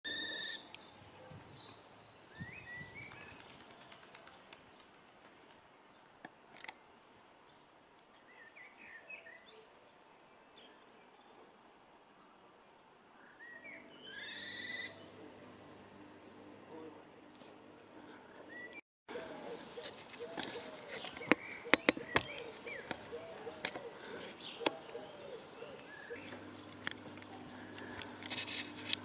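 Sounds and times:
faint background noise: 0.1 - 29.0
young kestrels calling: 13.7 - 15.1, 18.6 - 29.0.

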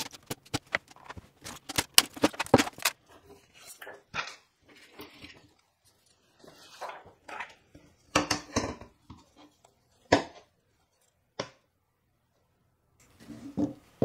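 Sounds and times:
plastic sheets rustling: 0.0 - 7.6.

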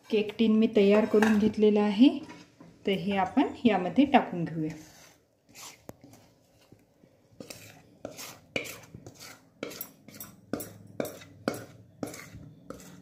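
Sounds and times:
batter scraped from plastic bowl: 4.7 - 6.7, 7.4 - 10.3, 11.1 - 13.0.

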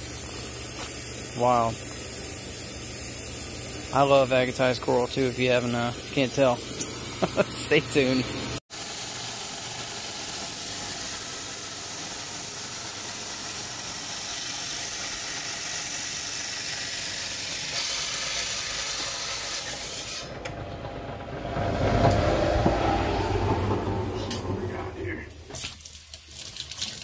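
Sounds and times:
water spraying: 0.0 - 20.3, 24.7 - 27.0
running water splashing: 25.4 - 27.0.

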